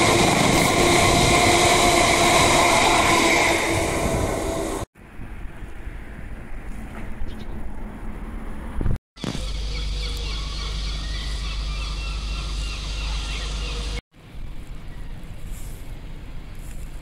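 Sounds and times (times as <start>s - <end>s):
wind noise: 0.0s - 6.9s.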